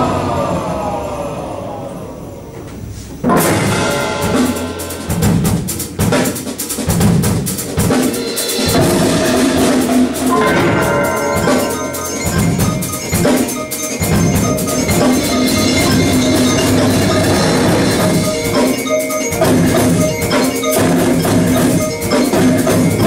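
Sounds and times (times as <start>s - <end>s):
fast drum strokes: 3.2s - 23.0s
marimba notes: 8.1s - 23.0s.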